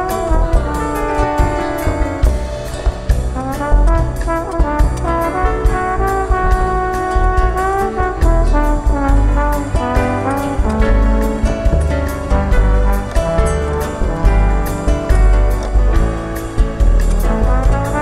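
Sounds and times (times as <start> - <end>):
live band playing: 0.0 - 18.0
trombone solo melody: 0.0 - 18.0.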